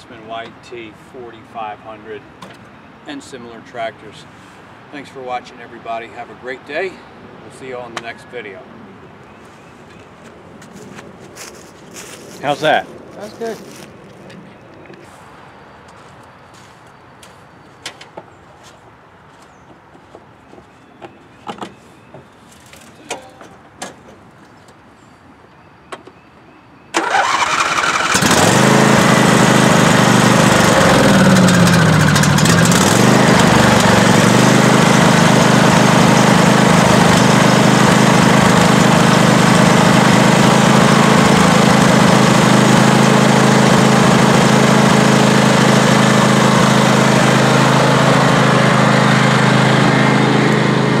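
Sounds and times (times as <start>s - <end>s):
electric starter cranking: 27.0s - 49.6s
lawn tractor engine running: 27.0s - 51.0s.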